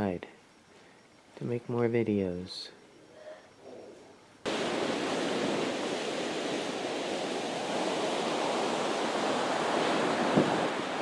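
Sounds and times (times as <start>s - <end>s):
ocean surf breaking on beach: 4.5s - 11.0s
wind on microphone: 4.5s - 11.0s.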